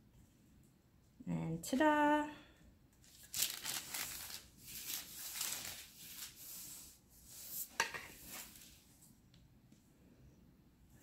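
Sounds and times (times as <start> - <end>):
smoother swishing on fondant: 4.6 - 9.1.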